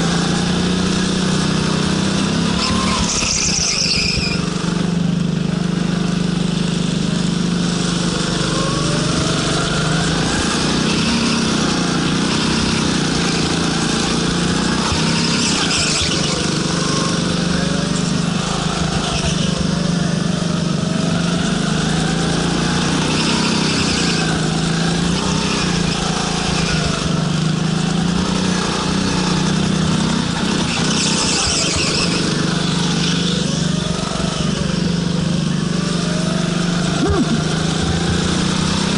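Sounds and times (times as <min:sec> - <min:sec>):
go-kart engine revving: 0:00.0 - 0:38.9.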